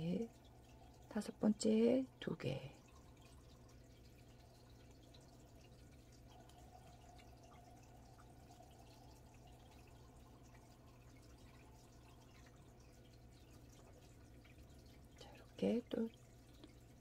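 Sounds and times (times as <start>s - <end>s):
low steady hum: 0.0s - 17.0s
faint ticks: 2.8s - 17.0s.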